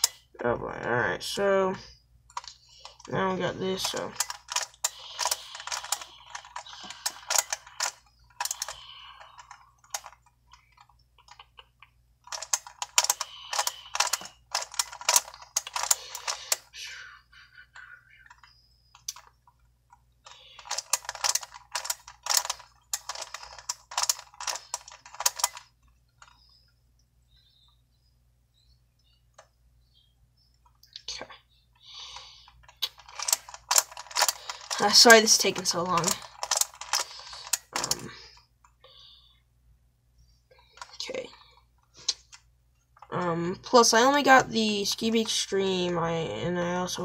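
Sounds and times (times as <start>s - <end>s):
plastic puzzle clicking and clacking: 2.3s - 16.7s, 18.2s - 26.4s, 32.0s - 38.4s, 40.6s - 42.4s.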